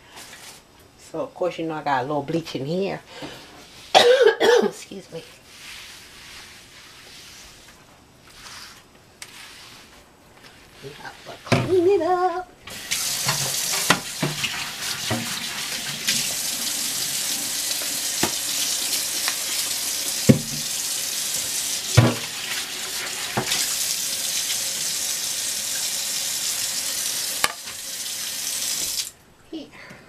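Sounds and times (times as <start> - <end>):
tap running into sink: 12.9 - 16.4, 17.7 - 18.4, 20.2 - 20.8, 21.4 - 22.5, 23.2 - 23.7, 27.4 - 27.8.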